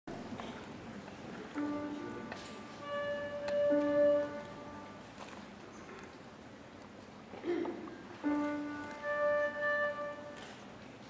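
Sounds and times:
soft accompaniment: 0:00.2 - 0:05.9, 0:07.4 - 0:11.0
melody instrument long held notes: 0:01.5 - 0:05.1, 0:08.1 - 0:10.5.

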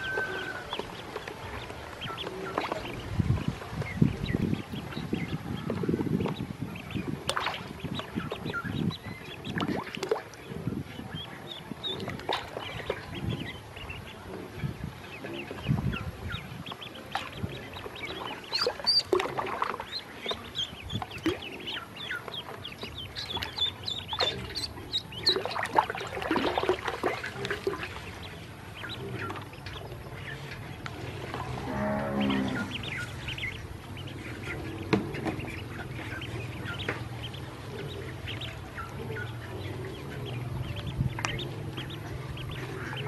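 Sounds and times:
ducklings peeping: 0:00.0 - 0:43.0
water splashing in a steel basin: 0:07.2 - 0:07.8, 0:09.5 - 0:10.5, 0:17.1 - 0:20.5, 0:23.2 - 0:28.3.

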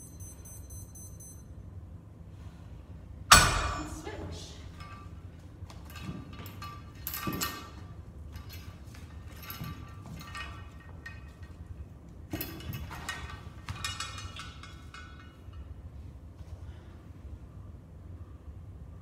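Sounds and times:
steady low hum: 0:00.0 - 0:19.0
metal clinking and rattling: 0:03.3 - 0:16.1.

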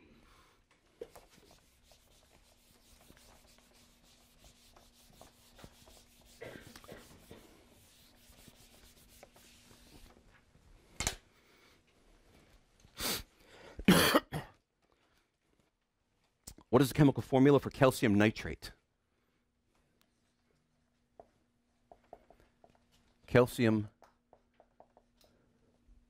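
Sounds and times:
marker scratching on whiteboard: 0:01.0 - 0:10.2.

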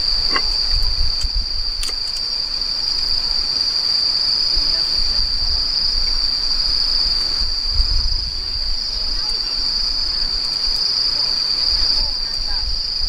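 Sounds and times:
crickets chirping: 0:00.0 - 0:13.0
wood fire clicks: 0:01.2 - 0:02.3.

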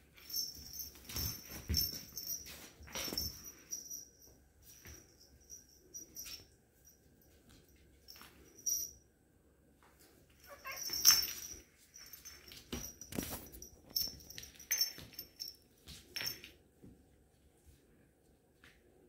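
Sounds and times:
cats scuffling with knocks: 0:00.1 - 0:04.0, 0:09.8 - 0:17.1.

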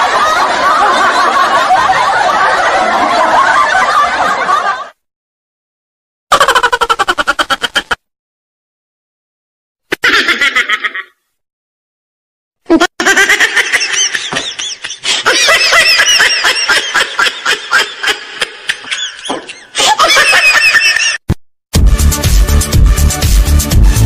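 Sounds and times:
high-pitched laughter: 0:06.3 - 0:08.0, 0:09.9 - 0:11.2, 0:12.7 - 0:21.2.

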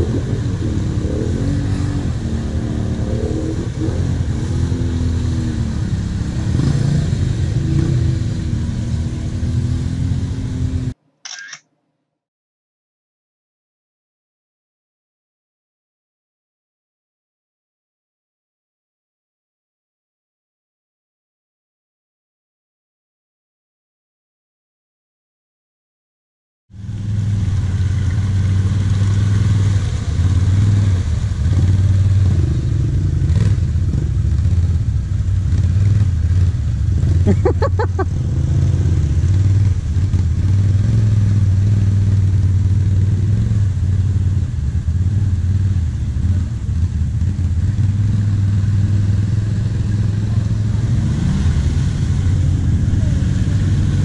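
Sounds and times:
quads wading through water: 0:00.0 - 0:10.6, 0:26.8 - 0:54.0
quad bike engines droning: 0:00.0 - 0:11.6, 0:26.7 - 0:54.0.

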